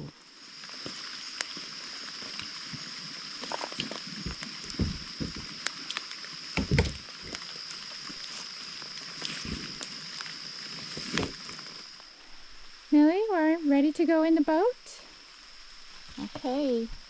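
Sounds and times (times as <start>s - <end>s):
knocks and thumps against kayak hull: 4.2s - 5.5s, 6.6s - 7.0s.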